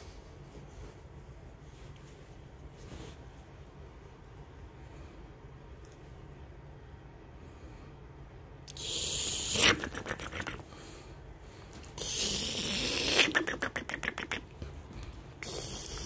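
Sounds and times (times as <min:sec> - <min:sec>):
bedding rustling and scraping: 0:00.0 - 0:04.6
scratchy strokes on bedding: 0:00.0 - 0:04.6.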